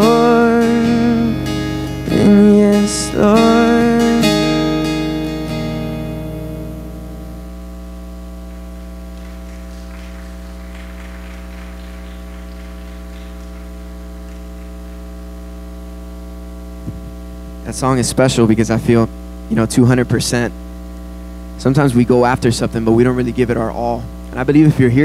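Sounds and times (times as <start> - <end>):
acoustic guitar chord ringing: 0.0 - 9.2, 18.7 - 20.5
mains hum: 0.0 - 25.0.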